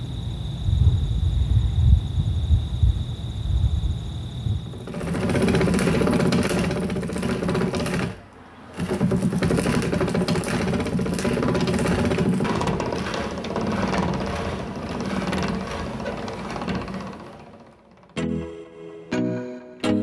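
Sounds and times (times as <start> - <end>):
wind on microphone: 0.6 - 5.7
auger boring into timber: 4.7 - 18.2.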